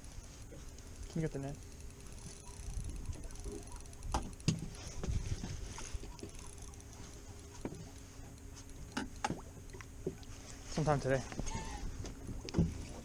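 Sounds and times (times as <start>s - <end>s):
faint hum: 0.0s - 13.0s
sharp clicks and knocks: 1.7s - 6.8s, 7.6s - 10.3s
low wind rumble: 1.9s - 13.0s.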